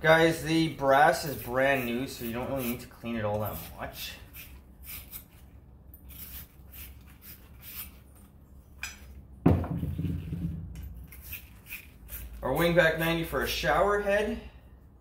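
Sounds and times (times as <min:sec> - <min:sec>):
wire brush scrubbing metal: 0:00.2 - 0:05.4
knock on wooden bench: 0:09.4 - 0:10.8.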